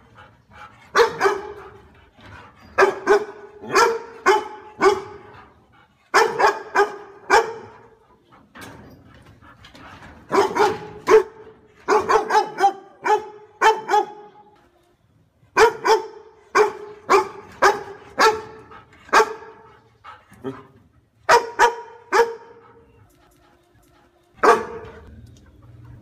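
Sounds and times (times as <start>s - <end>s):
dog barking: 0.9s - 1.8s, 2.8s - 5.3s, 6.1s - 8.0s, 10.3s - 14.4s, 15.6s - 19.7s, 21.3s - 22.8s, 24.4s - 25.1s.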